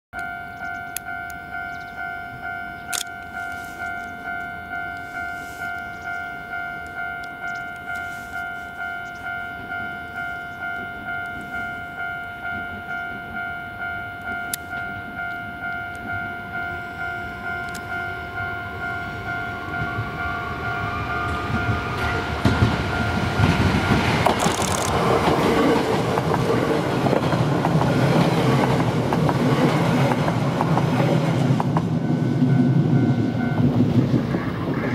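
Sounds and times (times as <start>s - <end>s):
level crossing bell ringing: 0.2s - 24.9s
electric train passing: 0.2s - 34.9s.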